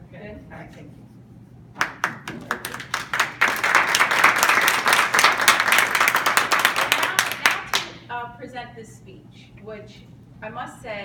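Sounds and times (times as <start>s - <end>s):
audience applauding: 1.8s - 7.9s.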